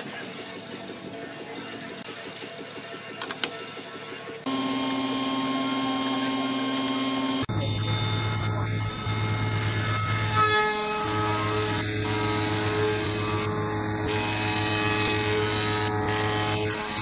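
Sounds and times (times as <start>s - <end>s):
spindle moulder machine hum: 0.0s - 17.0s
cutter machining wood: 4.4s - 17.0s.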